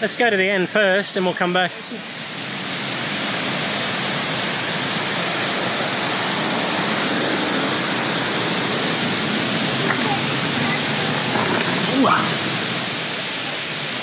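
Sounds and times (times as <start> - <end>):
waterfall rushing: 0.0 - 14.0.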